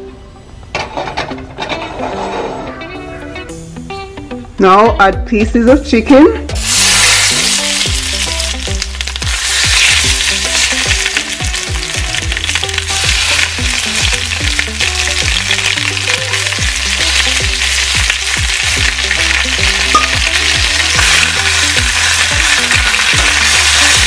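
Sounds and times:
chicken sizzling in hot oil: 6.6s - 24.0s.

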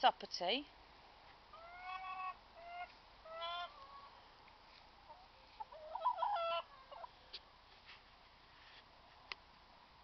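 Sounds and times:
hens clucking: 1.5s - 4.3s, 5.0s - 7.6s.

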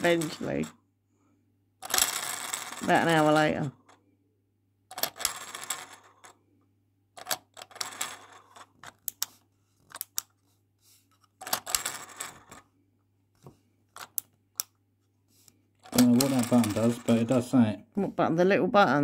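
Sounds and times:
toy slot machine reels rattling: 1.8s - 3.8s, 4.9s - 6.3s, 7.2s - 8.7s, 15.8s - 17.4s.

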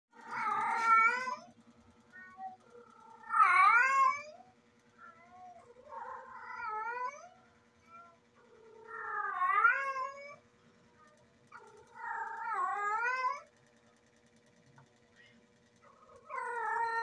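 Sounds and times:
cat yowling: 0.2s - 1.5s, 2.1s - 10.4s, 11.6s - 13.5s, 15.9s - 17.0s.

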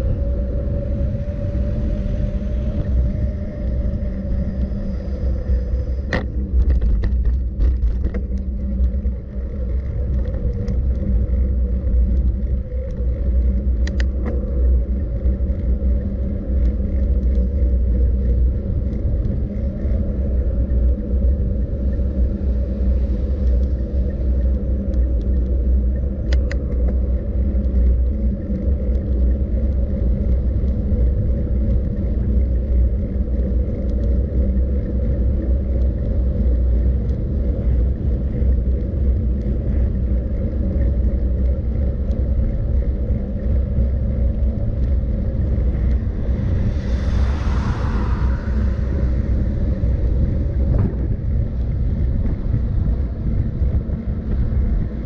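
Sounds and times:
road travel rumble: 0.0s - 55.0s.

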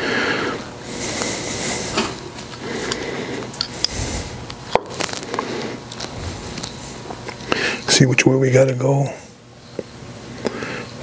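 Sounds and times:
rubbing and scraping: 6.0s - 7.3s.

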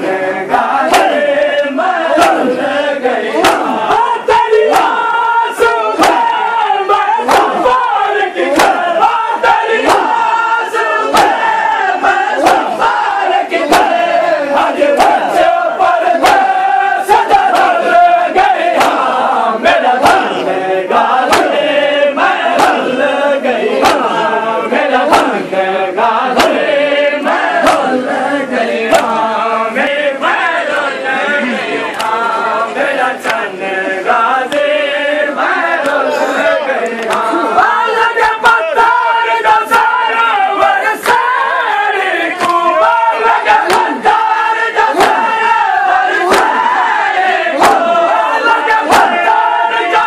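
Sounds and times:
crowd of men chanting: 0.0s - 50.0s
chest-beating slaps: 0.9s - 1.2s, 3.4s - 4.0s, 4.6s - 5.1s, 5.9s - 6.4s, 7.2s - 7.8s, 8.4s - 8.9s, 11.0s - 11.4s, 12.4s - 12.8s, 13.6s - 14.0s, 16.2s - 18.0s, 18.7s - 19.2s, 21.2s - 21.7s, 22.5s - 22.9s, 23.8s - 24.2s, 25.0s - 25.4s, 26.3s - 27.9s, 28.9s - 29.2s, 31.9s - 32.2s, 33.2s - 33.5s, 36.8s - 37.4s, 42.3s - 42.7s, 43.6s - 44.2s, 44.9s - 45.3s, 46.2s - 46.7s, 47.6s - 47.9s, 48.8s - 49.3s.

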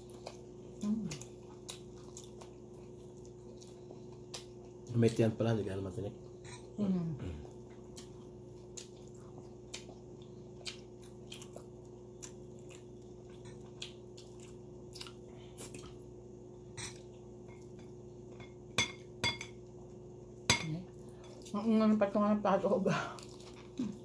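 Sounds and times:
person chewing with mouth clicks: 0.0s - 4.9s, 7.4s - 16.0s
faint steady hum: 0.0s - 24.0s.

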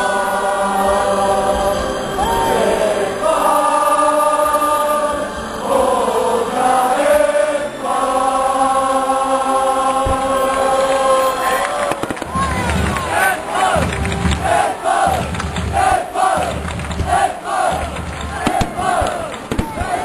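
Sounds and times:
football crowd chanting: 0.0s - 20.0s.

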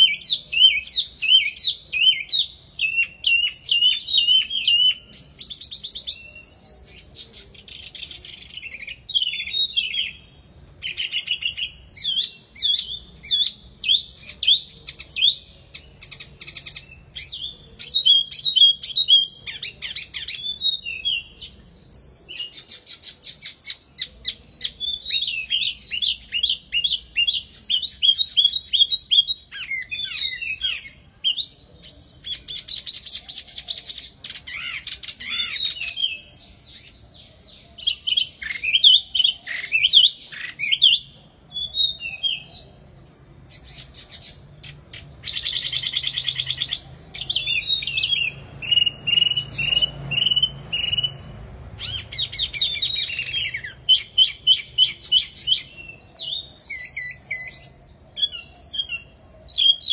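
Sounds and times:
songbird singing: 0.0s - 59.9s.

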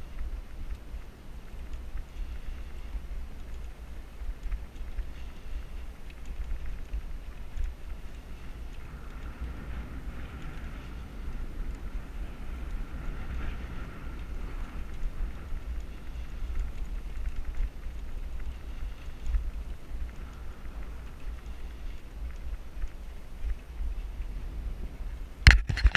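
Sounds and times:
wind buffeting microphone: 0.0s - 25.9s.

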